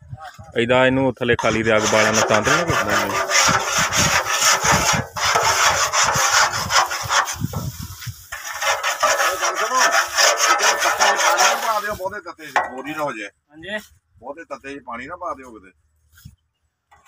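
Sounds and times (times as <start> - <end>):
shovel scraping iron pan: 1.4 - 13.1.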